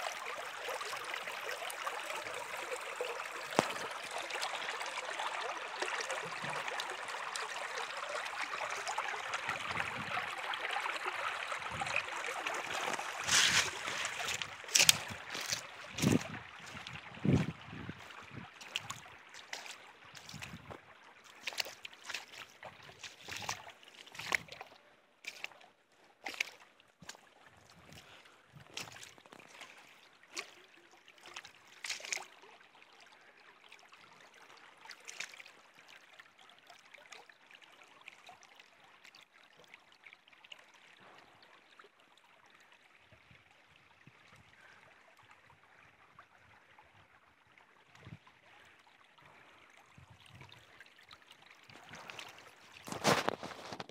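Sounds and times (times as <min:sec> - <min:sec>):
stream trickling: 0:00.0 - 0:53.9
footsteps in dry leaves: 0:12.8 - 0:16.3.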